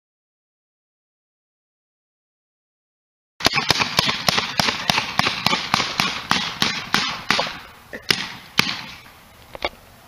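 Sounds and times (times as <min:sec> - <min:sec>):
paintball gun shots: 0:03.4 - 0:09.1.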